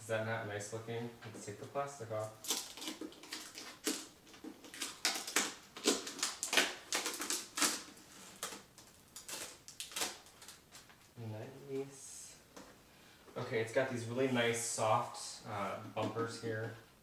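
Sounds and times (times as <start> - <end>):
plastic film peeling and crinkling: 2.1 - 11.1.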